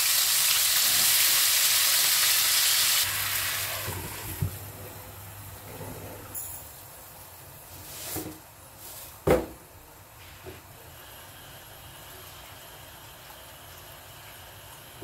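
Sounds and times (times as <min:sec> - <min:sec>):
food frying in pans: 0:00.0 - 0:04.6, 0:10.2 - 0:15.0.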